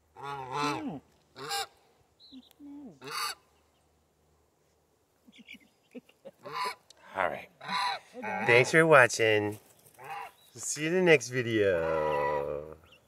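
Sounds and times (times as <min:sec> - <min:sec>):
farm fowl honking: 0:00.1 - 0:01.8, 0:03.0 - 0:03.5, 0:06.4 - 0:06.8, 0:07.6 - 0:08.9, 0:10.0 - 0:10.4, 0:11.8 - 0:12.5.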